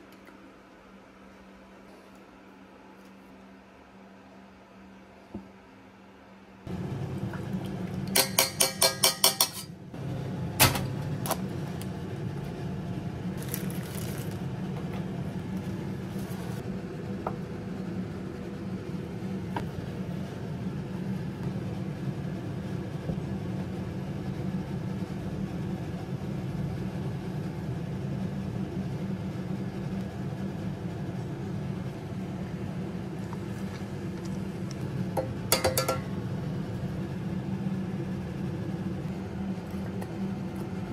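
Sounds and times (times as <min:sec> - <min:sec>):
steady low hum: 0:00.0 - 0:40.9
utensils clinking on steel pan: 0:08.1 - 0:09.7, 0:35.5 - 0:36.1.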